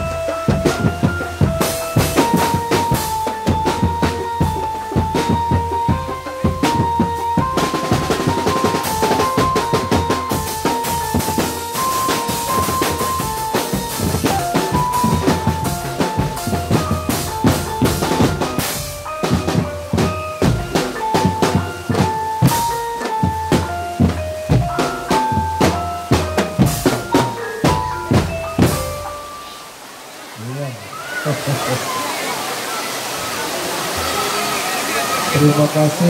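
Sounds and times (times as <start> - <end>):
drum band playing: 0.0 - 29.6
high stepping melody: 0.0 - 29.8.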